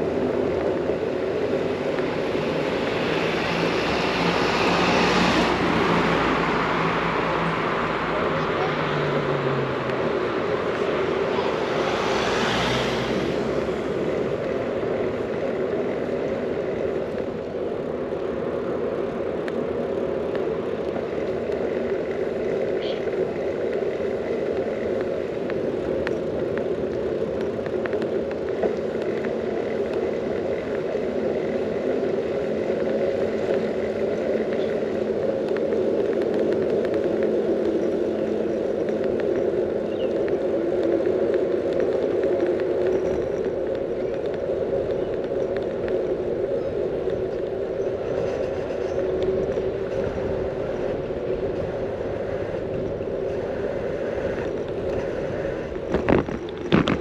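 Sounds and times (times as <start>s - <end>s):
bicycle tyres rolling on asphalt: 0.0s - 57.0s.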